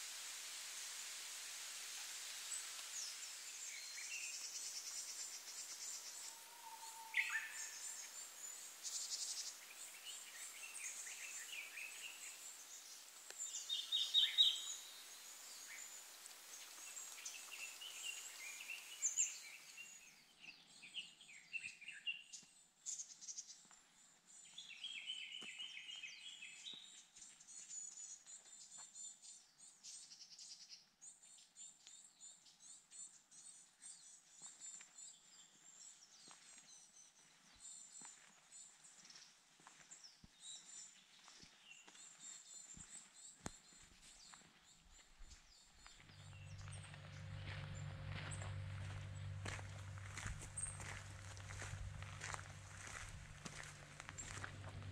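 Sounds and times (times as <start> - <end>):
steady hiss: 0.0 - 20.1
songbirds chipping and trilling: 2.6 - 54.9.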